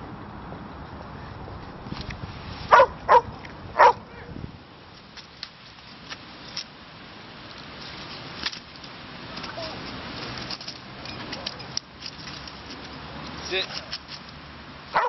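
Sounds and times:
dog barking: 2.7s - 4.0s.

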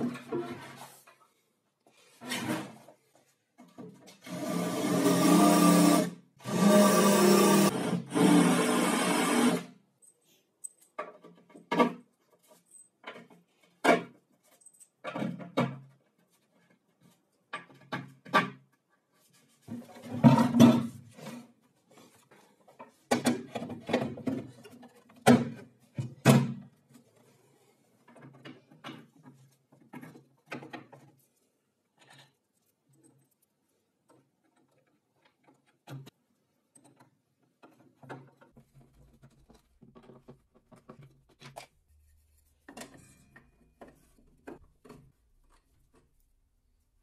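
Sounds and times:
wood and hardware being handled: 10.0s - 46.6s.

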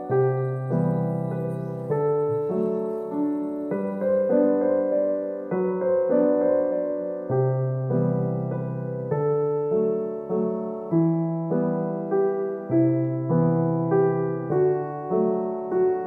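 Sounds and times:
slow piano tune: 0.0s - 16.0s.

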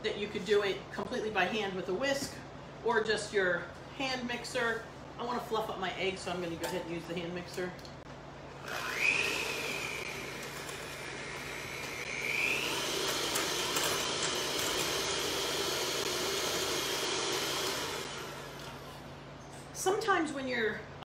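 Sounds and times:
electric hand mixer whirring: 8.6s - 19.0s.

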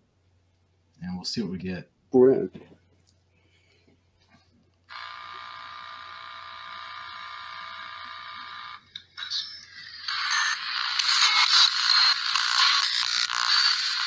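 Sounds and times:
steady buzzing tone: 4.9s - 14.0s.

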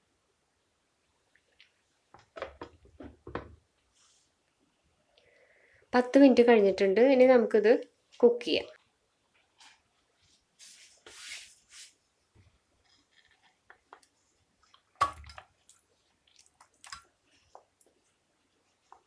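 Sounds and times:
soft squishes and clicks: 1.1s - 2.7s, 12.8s - 19.0s
soft brushing noises: 3.9s - 4.4s, 9.3s - 13.6s.

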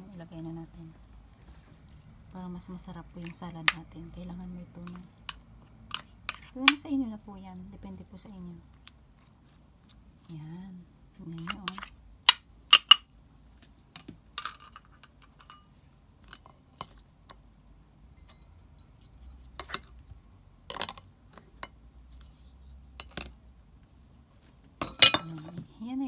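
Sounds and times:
salad servers clinking on bowl: 24.8s - 25.5s.

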